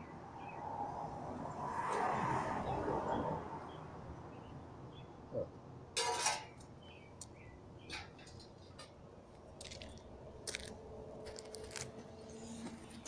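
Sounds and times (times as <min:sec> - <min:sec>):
sheet metal scraping and clanking: 0:06.0 - 0:06.6.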